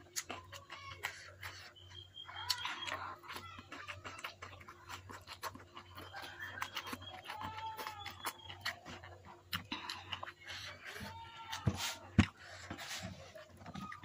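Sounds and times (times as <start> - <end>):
close chewing and lip smacks: 0.0 - 14.0
chickens calling: 4.6 - 14.0.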